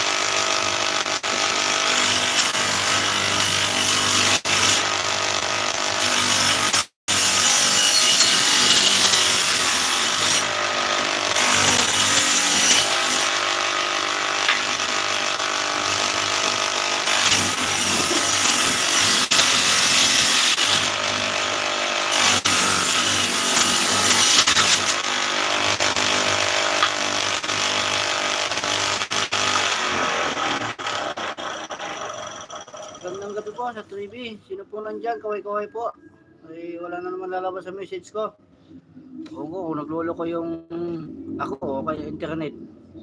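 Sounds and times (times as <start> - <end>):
power tool cutting wood: 0.0 - 33.6.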